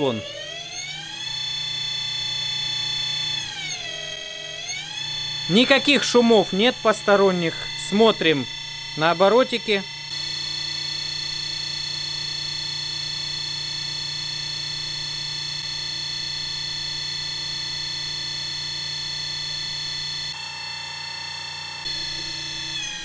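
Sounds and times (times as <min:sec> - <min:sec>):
electric motor whine: 0:00.0 - 0:23.0.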